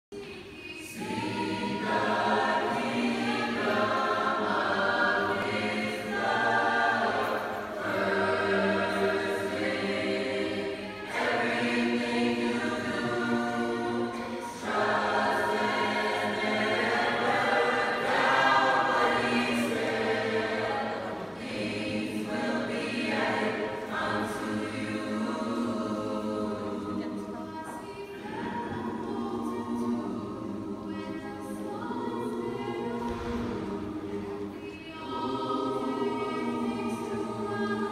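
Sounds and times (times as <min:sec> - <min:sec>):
children's choir singing: 0:00.1 - 0:37.9.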